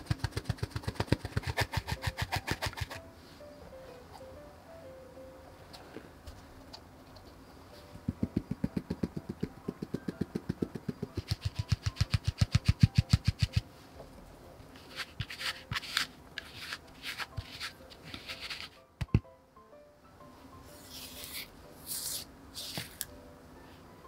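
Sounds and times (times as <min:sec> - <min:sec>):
scratchy taps: 0:08.0 - 0:13.7.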